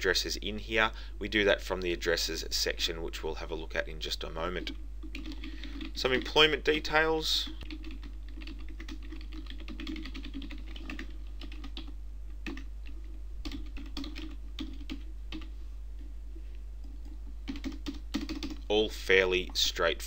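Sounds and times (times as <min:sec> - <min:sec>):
steady low hum: 0:00.0 - 0:20.0
typing on computer keyboard: 0:05.0 - 0:06.3, 0:07.6 - 0:15.5, 0:16.8 - 0:18.6.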